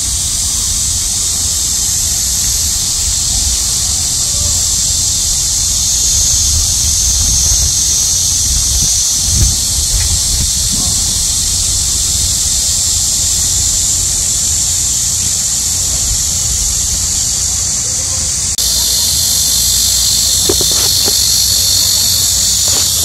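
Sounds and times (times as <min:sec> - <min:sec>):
cicadas buzzing: 0:00.0 - 0:23.0
brief thump: 0:20.4 - 0:21.3.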